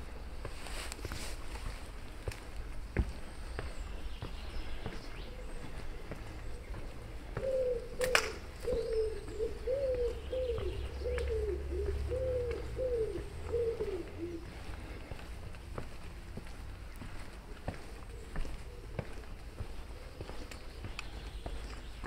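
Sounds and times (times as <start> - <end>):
pigeon cooing: 7.3 - 14.9.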